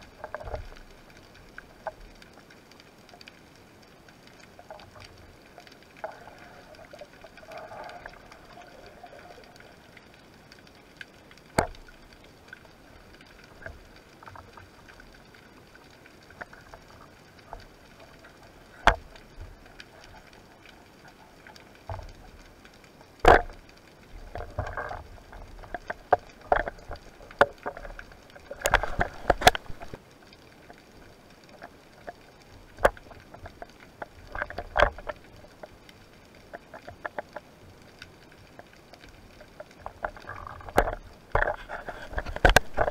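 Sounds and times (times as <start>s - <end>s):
faint underwater hiss: 0.0s - 42.9s
clicks and knocks of diving gear: 0.2s - 2.5s, 10.6s - 15.3s, 16.2s - 22.3s, 23.2s - 30.0s, 31.5s - 35.8s, 36.4s - 42.9s.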